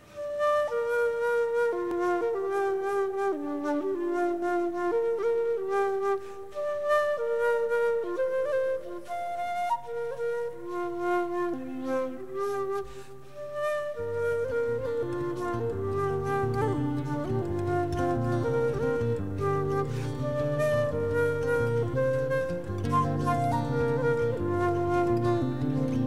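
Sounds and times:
slow smooth melody with harmony: 0:09.9 - 0:26.0.

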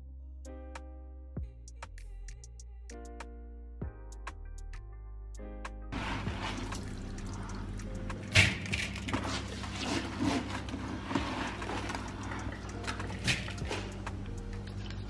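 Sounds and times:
rice swishing in water: 0:06.0 - 0:07.7, 0:09.1 - 0:15.0.

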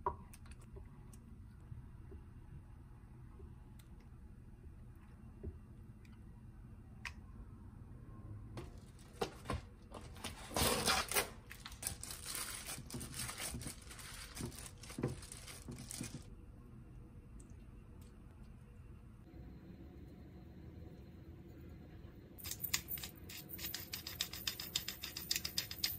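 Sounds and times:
plastic tray rustling: 0:08.7 - 0:16.3
plastic glove crinkling: 0:10.4 - 0:16.3.

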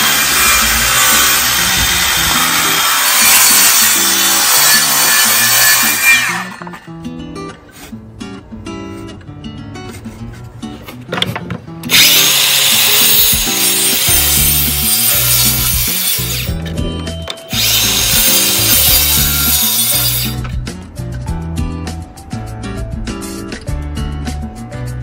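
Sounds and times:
circular saw cutting wood: 0:00.0 - 0:06.8, 0:11.9 - 0:16.6, 0:17.5 - 0:20.4.

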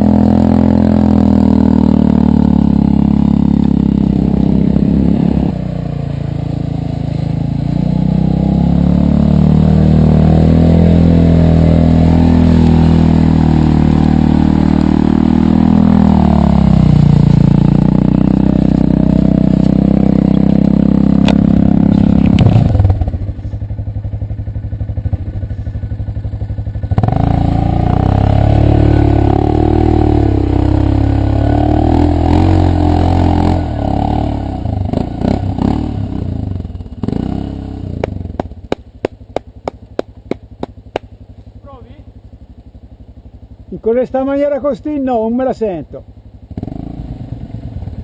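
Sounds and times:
quad engine revving in mud: 0:00.0 - 0:23.4, 0:25.0 - 0:41.0, 0:43.9 - 0:48.0
sharp evenly spaced ticks: 0:38.0 - 0:41.5.

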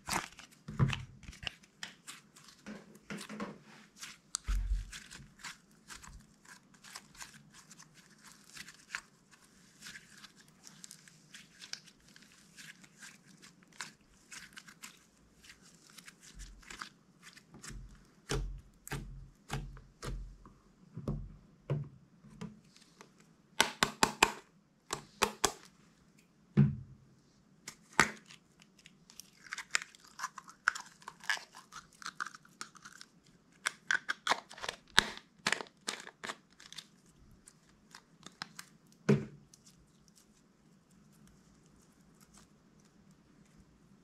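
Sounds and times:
slime squished by hand: 0:04.0 - 0:20.4.

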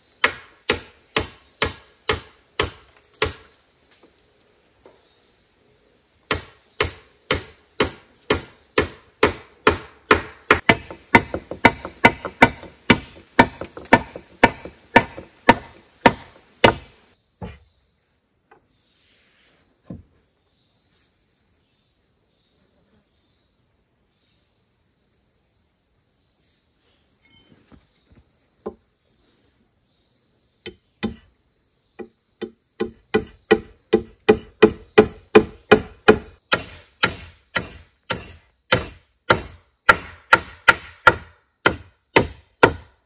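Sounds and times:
hand tool striking wood: 0:00.2 - 0:03.5, 0:06.3 - 0:17.6, 0:30.7 - 0:31.3, 0:32.0 - 0:42.9.

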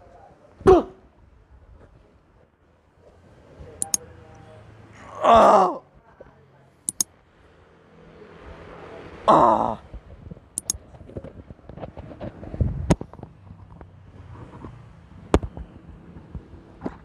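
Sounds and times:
sharp clicks: 0:03.8 - 0:04.0, 0:06.9 - 0:07.1.

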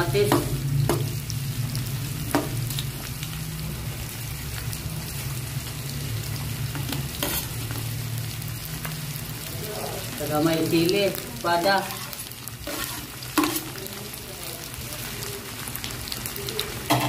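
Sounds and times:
onions sizzling in hot oil: 0:00.0 - 0:17.0
tomatoes dropping into oil: 0:02.3 - 0:02.9, 0:12.7 - 0:13.8
spatula stirring in wok: 0:06.4 - 0:08.0, 0:11.8 - 0:14.2.

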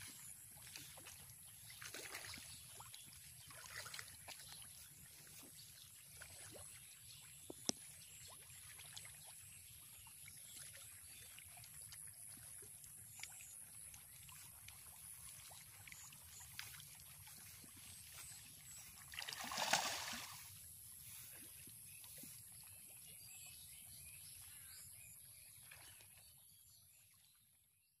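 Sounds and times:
water splash: 0:18.6 - 0:20.6.

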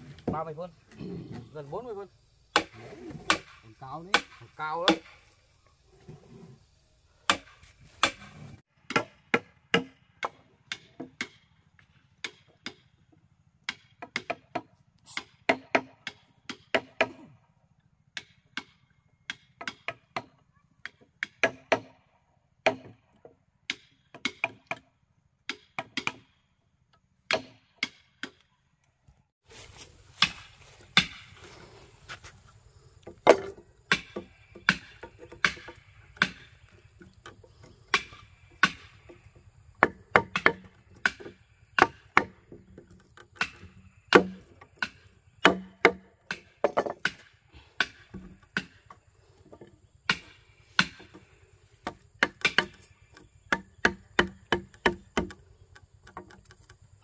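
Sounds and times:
hand tool chopping wood: 0:02.5 - 0:05.3, 0:07.3 - 0:11.5, 0:12.2 - 0:12.9, 0:13.6 - 0:17.4, 0:18.2 - 0:22.0, 0:22.6 - 0:23.0, 0:23.7 - 0:24.9, 0:25.5 - 0:26.3, 0:27.3 - 0:28.5, 0:29.8 - 0:32.3, 0:33.1 - 0:55.4.

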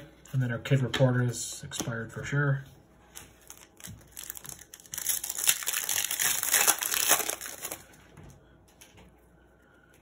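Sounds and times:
plastic wrapper crinkling: 0:03.1 - 0:08.0.

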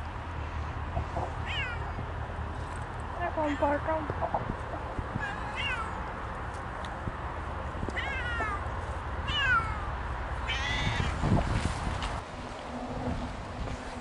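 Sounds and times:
cat meowing: 0:01.4 - 0:02.0, 0:05.2 - 0:06.0, 0:07.9 - 0:08.6, 0:09.2 - 0:11.2.

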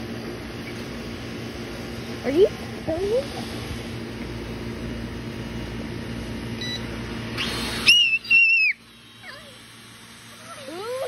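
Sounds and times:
toy drone propellers buzzing: 0:07.4 - 0:11.0.

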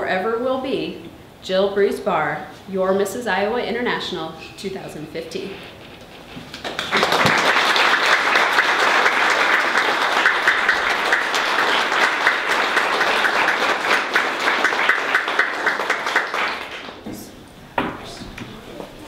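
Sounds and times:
audience applauding: 0:06.4 - 0:17.0.

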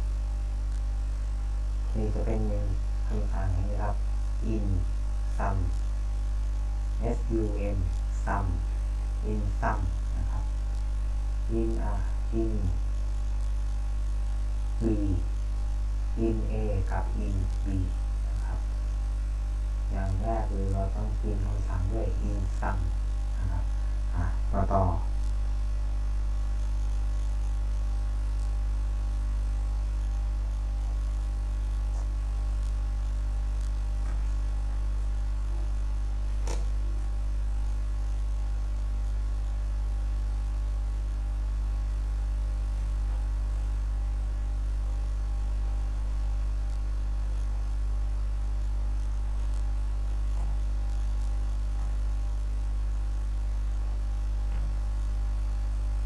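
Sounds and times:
mains hum: 0:00.0 - 0:56.0
sharp click: 0:36.4 - 0:36.8.

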